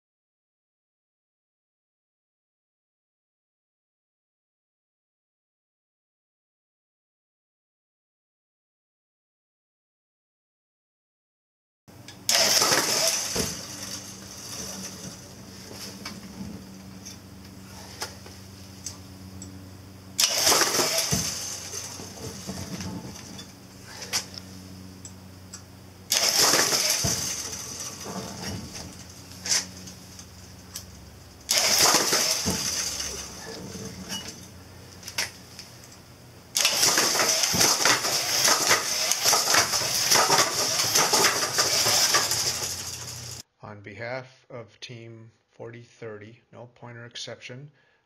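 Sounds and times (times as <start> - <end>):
low steady hum: 11.9 - 41.6
mechanical clatter and clicks: 25.0 - 43.4.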